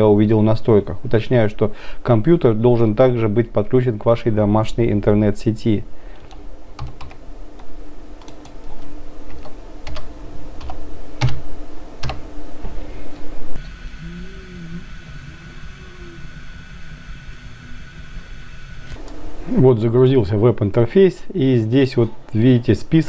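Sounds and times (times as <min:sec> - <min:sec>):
faint steady hum: 0:00.0 - 0:23.0
keyboard typing: 0:06.3 - 0:07.2, 0:08.2 - 0:11.4, 0:12.0 - 0:12.2.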